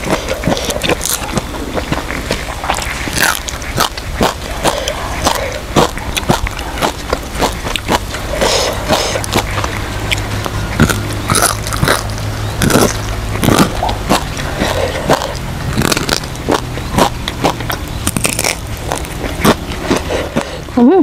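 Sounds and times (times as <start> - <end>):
chewing and crunching bones: 0.0 - 20.8
low steady hum: 0.0 - 21.0.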